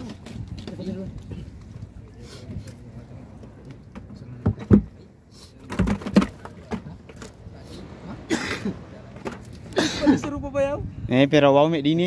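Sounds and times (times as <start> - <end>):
fish and bucket knocking: 5.7 - 6.9.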